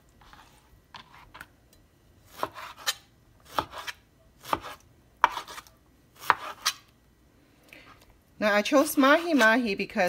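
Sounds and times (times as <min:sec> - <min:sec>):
knife slicing fish on cutting board: 0:02.3 - 0:06.8.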